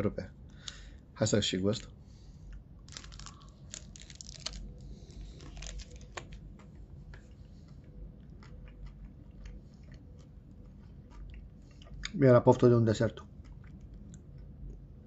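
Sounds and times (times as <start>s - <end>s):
person chewing crunchy chocolate: 2.4s - 12.2s, 13.1s - 15.0s.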